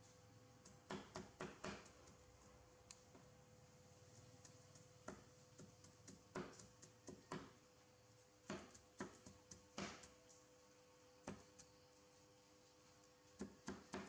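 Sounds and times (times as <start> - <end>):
cleaver chopping on wooden board: 0.8 - 1.9, 5.0 - 7.6, 8.5 - 10.1, 13.4 - 14.0.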